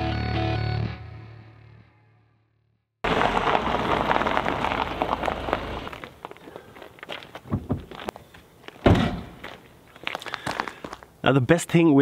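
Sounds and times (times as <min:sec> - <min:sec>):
car engine rumbling: 0:03.0 - 0:08.6
tyres crunching over gravel: 0:03.0 - 0:11.9
footsteps on gravel: 0:03.1 - 0:11.8.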